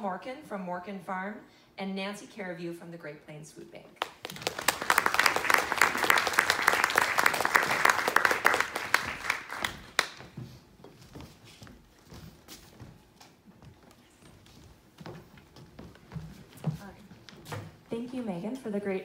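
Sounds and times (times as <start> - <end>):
audience applauding: 4.0 - 10.2.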